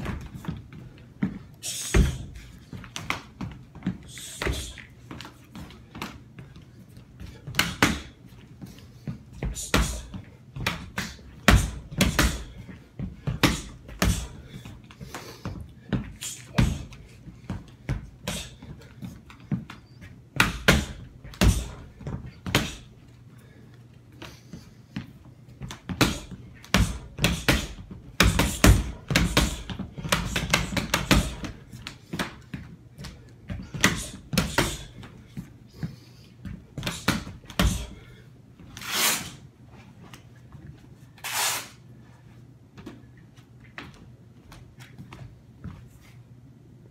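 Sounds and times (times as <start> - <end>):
boxing gloves thudding against wall: 1.2 - 4.6, 7.5 - 8.2, 9.4 - 14.5, 15.5 - 18.5, 20.3 - 22.9, 25.6 - 35.1, 36.5 - 38.0.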